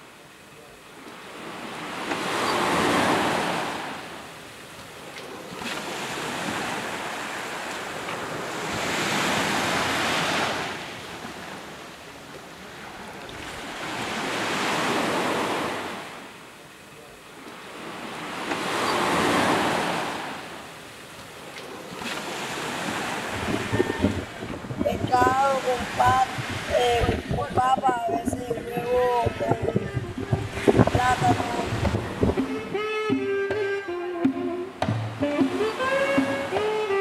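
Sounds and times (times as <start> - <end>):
small waves breaking on sandy shore: 0.0 - 34.0, 34.8 - 37.0.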